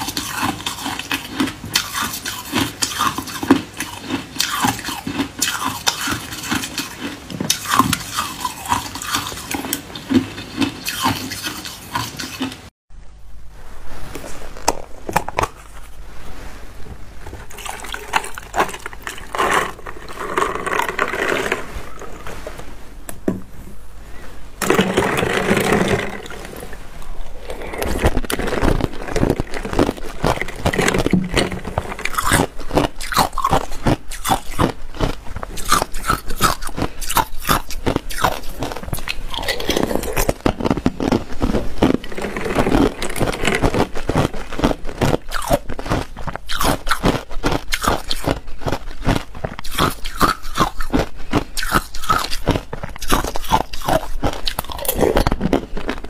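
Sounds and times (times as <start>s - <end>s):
ice cubes crunching: 0.0s - 12.5s, 17.4s - 22.2s, 24.6s - 56.0s
soft noise: 12.9s - 33.0s.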